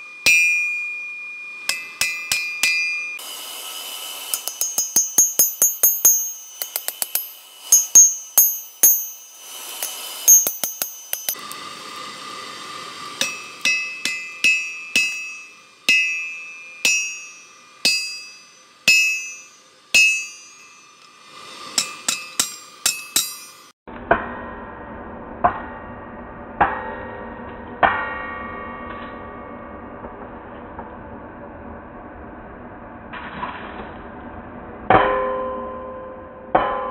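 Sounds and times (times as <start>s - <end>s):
hammer ringing on anvil: 0.1s - 3.2s, 4.3s - 11.4s, 13.2s - 21.0s, 21.8s - 23.8s.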